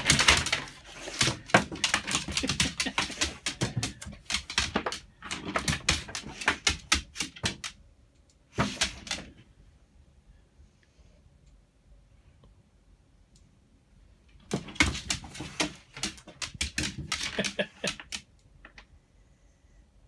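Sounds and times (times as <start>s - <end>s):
dog claws clicking on floor: 0.0s - 7.8s, 8.5s - 9.4s, 14.5s - 18.8s.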